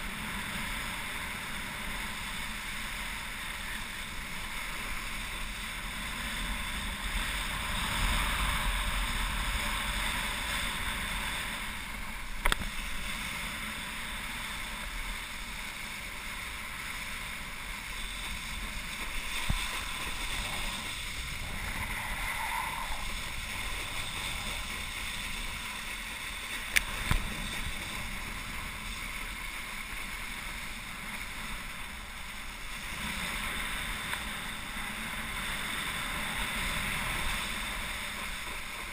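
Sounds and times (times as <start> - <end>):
wakeboard spray rushing: 0.0 - 38.9
wind buffeting microphone: 17.9 - 26.1.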